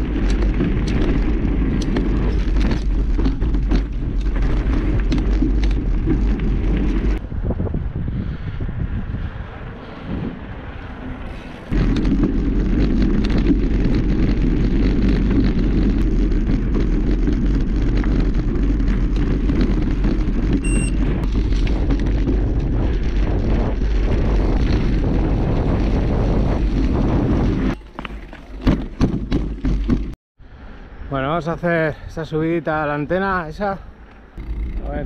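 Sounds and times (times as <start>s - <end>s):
bike rattling over rough trail: 0.0s - 7.3s, 11.0s - 30.2s
wind buffeting microphone: 0.0s - 27.8s.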